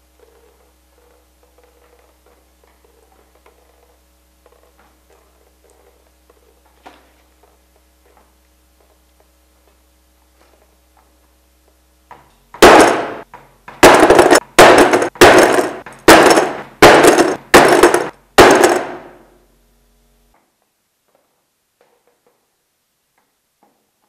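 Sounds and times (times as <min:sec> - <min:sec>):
hammer striking metal tool: 0:12.6 - 0:13.2, 0:13.8 - 0:19.2.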